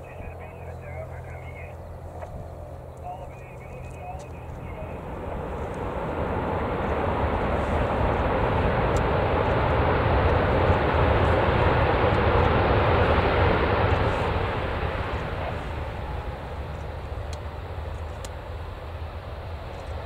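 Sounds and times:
jet engines rumbling: 0.0 - 20.0.

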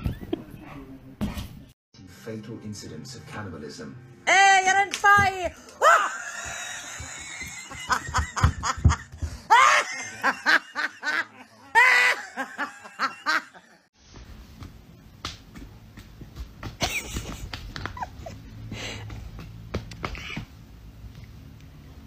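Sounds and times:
person laughing: 5.8 - 13.8, 16.8 - 19.0.

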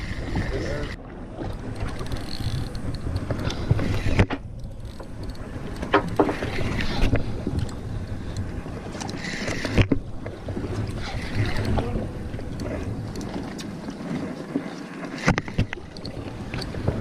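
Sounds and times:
wind buffeting microphone: 0.0 - 14.3
water sloshing against boat: 0.0 - 17.0.

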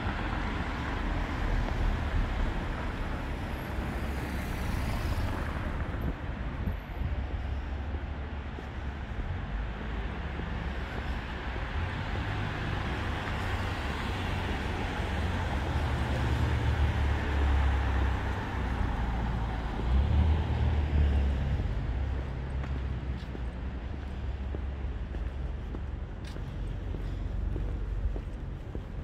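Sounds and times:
vehicles passing: 0.0 - 29.0.

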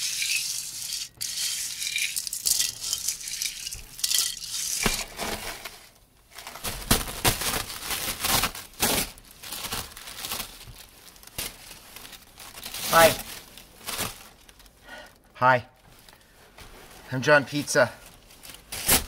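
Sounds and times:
tissue paper rustling: 4.5 - 14.7, 15.9 - 19.0.

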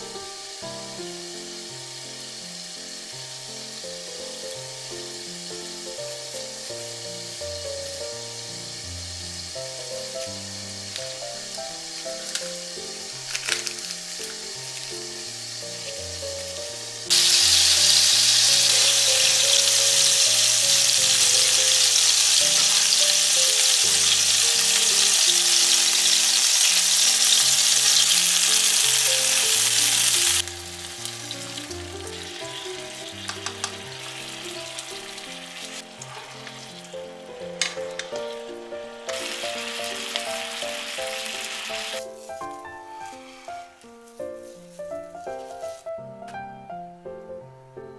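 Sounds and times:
food sizzling in oil: 0.0 - 45.9
gentle background music: 0.0 - 47.9
taps on frying pan: 33.2 - 33.8.

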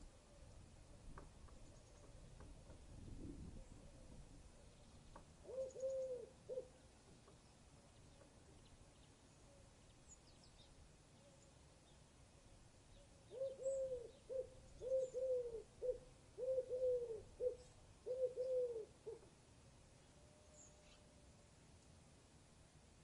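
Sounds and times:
bird hooting: 5.4 - 6.8, 13.3 - 19.3.

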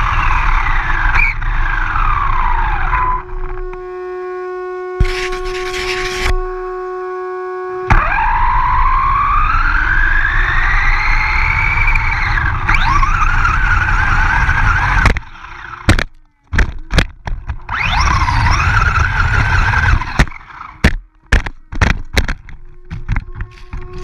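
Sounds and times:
rc truck motor whining: 0.0 - 24.0
tyre and wind noise: 7.9 - 24.0.

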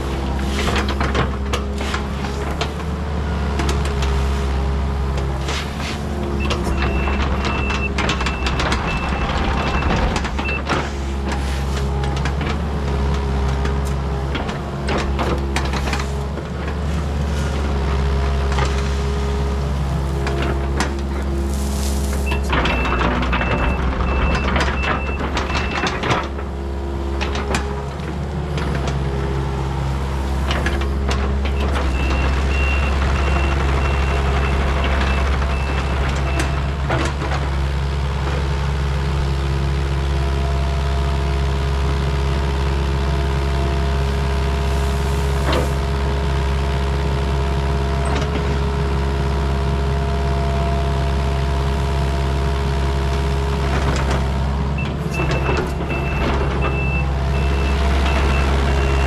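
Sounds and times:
tracks and bucket clanking: 0.0 - 39.0, 43.4 - 49.7, 52.6 - 59.0
excavator diesel engine running: 0.0 - 59.0.

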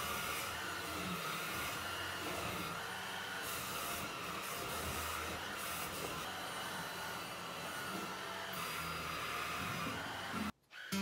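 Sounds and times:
cordless vacuum running: 0.0 - 11.0.

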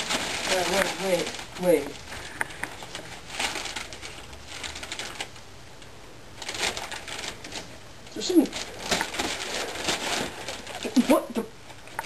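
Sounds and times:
wrapping paper rustling: 0.0 - 5.5, 6.2 - 12.0.

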